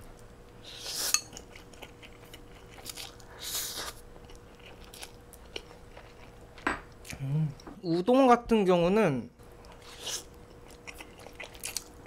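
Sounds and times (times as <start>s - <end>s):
chewing with wet clicks: 1.3s - 3.3s, 4.2s - 7.2s, 9.5s - 12.0s.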